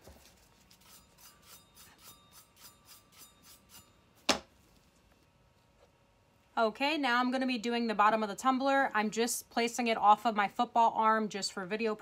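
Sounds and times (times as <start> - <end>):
paint brush brushing on metal: 0.0 - 3.9.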